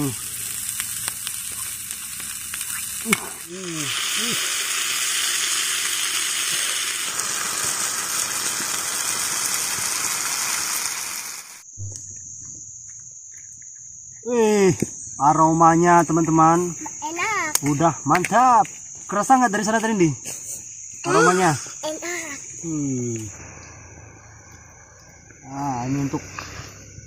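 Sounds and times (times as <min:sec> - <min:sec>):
food sizzling in hot oil: 0:00.0 - 0:11.7
crickets trilling: 0:00.0 - 0:27.0.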